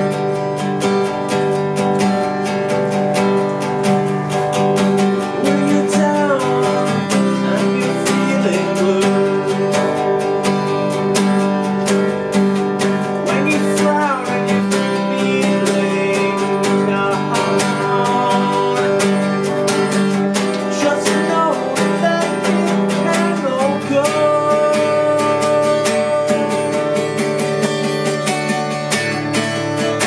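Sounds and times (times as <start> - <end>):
acoustic guitar strumming: 0.0 - 30.0
man singing: 5.1 - 11.1, 13.0 - 28.3.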